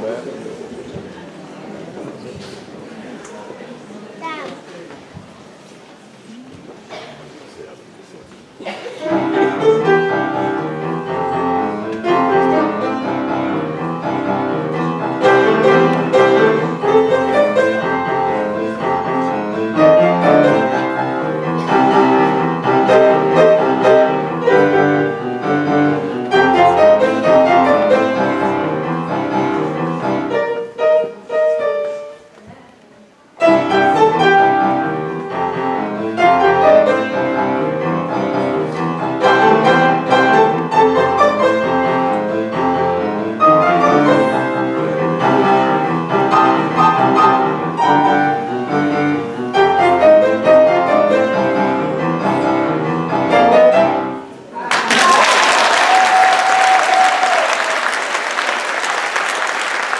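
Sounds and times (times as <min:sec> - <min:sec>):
piano duet: 0:09.0 - 0:32.3, 0:33.4 - 0:54.5.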